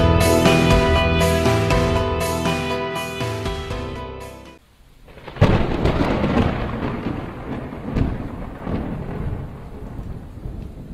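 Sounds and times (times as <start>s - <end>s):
steady rain: 4.6s - 10.9s
rumbling thunder: 5.0s - 10.9s.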